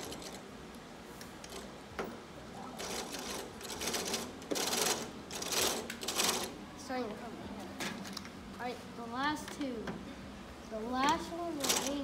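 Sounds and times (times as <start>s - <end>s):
plastic toy gears rattling: 0.0s - 0.4s.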